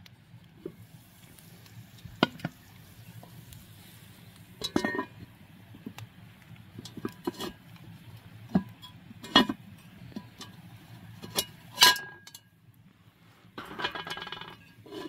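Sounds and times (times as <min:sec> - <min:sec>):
cast iron pot clanking on grate: 0:02.1 - 0:03.5, 0:04.6 - 0:06.0, 0:06.7 - 0:12.5, 0:13.6 - 0:15.0.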